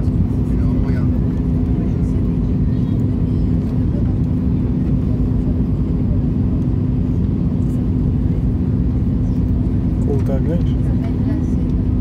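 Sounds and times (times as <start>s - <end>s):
aircraft cabin engine rumble: 0.0s - 12.0s.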